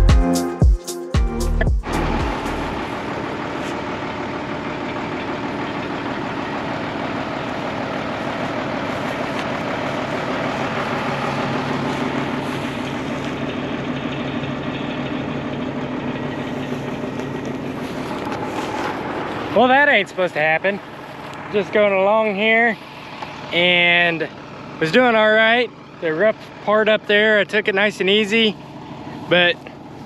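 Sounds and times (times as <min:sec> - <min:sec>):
background music: 0:00.0 - 0:02.9
tractor engine running: 0:01.3 - 0:30.0.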